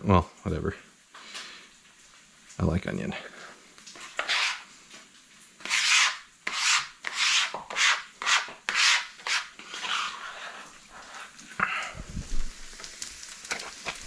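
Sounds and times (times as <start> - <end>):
scraper scraping wooden board: 4.0 - 4.7, 5.6 - 11.1.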